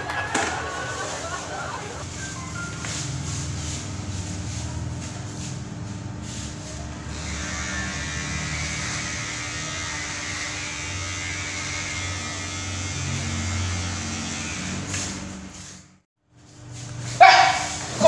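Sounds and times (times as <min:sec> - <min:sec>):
electric hair clippers buzzing: 0:06.2 - 0:15.7.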